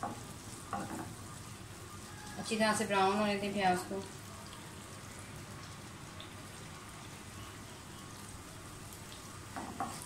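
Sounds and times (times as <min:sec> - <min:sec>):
onions sizzling in oil: 0:00.0 - 0:10.0.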